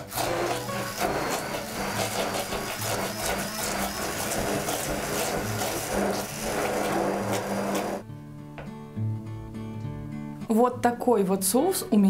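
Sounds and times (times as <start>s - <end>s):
immersion blender running: 0.0s - 8.0s.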